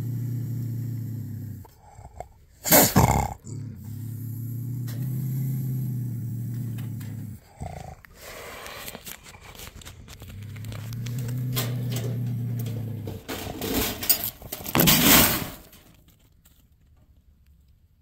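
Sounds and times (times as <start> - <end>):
bobcat growling: 0.0 - 15.4
wire trap clicks and rattles: 10.4 - 15.8
harsh rattling rush of trap door: 11.1 - 15.7.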